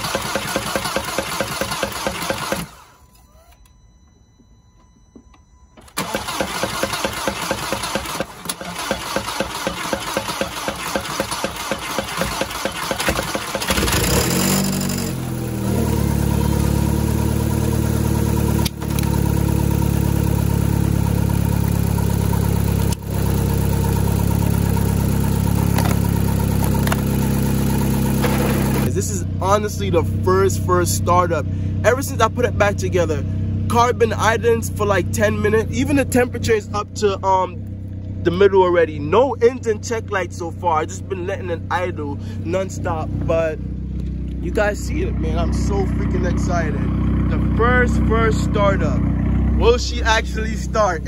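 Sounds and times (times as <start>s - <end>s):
car engine cranking on starter: 0.0s - 3.7s, 5.8s - 15.2s, 15.9s - 28.9s
car engine revving and idling: 6.0s - 51.0s.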